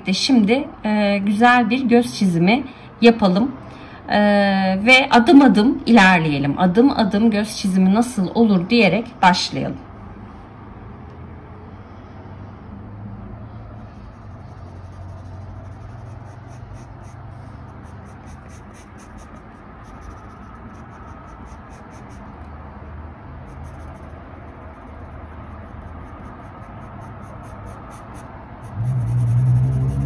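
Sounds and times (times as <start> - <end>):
low steady hum: 0.0 - 30.0
pencil scratching on paper: 13.9 - 22.5, 23.4 - 30.0.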